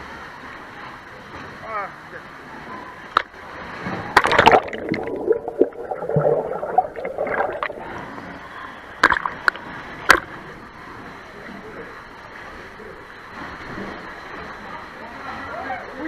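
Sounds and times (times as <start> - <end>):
water splashing: 3.0 - 10.5
muffled underwater gurgling: 4.1 - 9.6.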